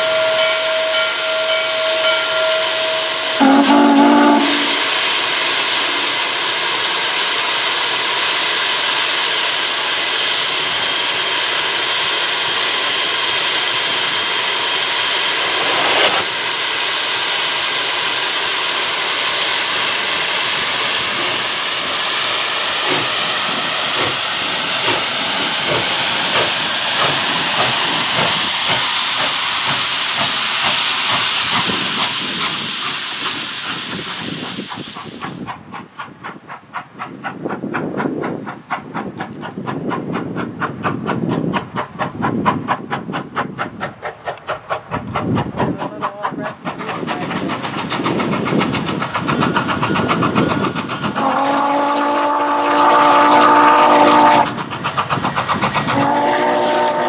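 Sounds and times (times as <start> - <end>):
steam whistle chord: 0.0 - 5.2, 56.0 - 57.0
loud steam hissing: 0.0 - 57.0
steam puffs: 2.6 - 57.0.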